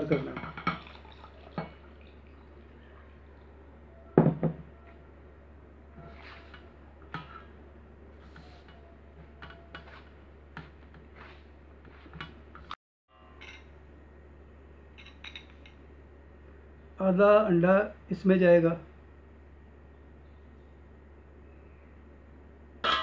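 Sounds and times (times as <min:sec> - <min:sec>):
steady low hum: 0:00.0 - 0:23.0
bowls clinking and knocking: 0:00.2 - 0:02.5, 0:15.0 - 0:15.8.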